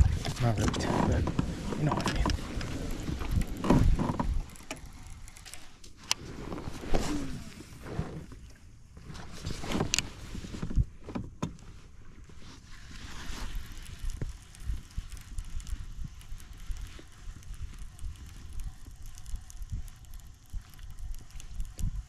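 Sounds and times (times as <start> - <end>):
gear knocking against kayak: 0.0 - 5.6
wind rumbling on microphone: 0.0 - 22.0.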